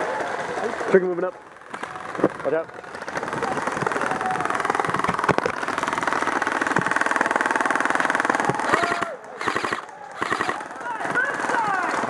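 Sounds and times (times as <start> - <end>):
airsoft gun full-auto rattle: 0.5 - 12.0.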